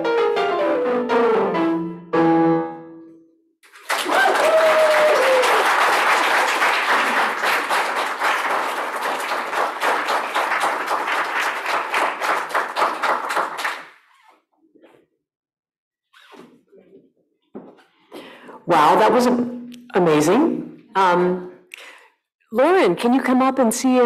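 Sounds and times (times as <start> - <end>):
piano chord: 0.0 - 3.5
audience applause: 3.6 - 14.0.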